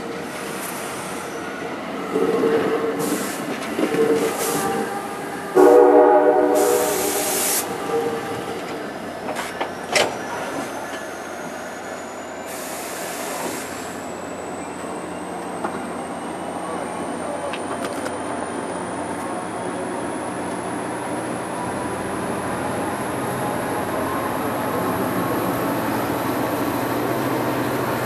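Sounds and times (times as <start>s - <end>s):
train wheels on rails: 0.0s - 5.6s, 6.5s - 28.0s
train horn: 4.0s - 8.3s.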